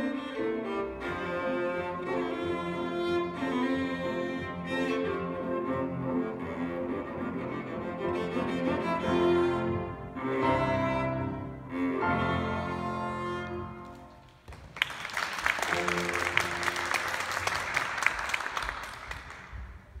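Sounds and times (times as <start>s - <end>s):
cello and piano playing: 0.0s - 14.2s, 15.7s - 17.4s
applause: 13.9s - 20.0s.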